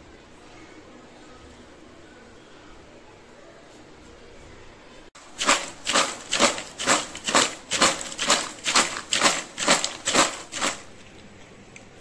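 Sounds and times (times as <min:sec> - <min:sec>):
fries rattling in plastic container: 0:05.2 - 0:11.0.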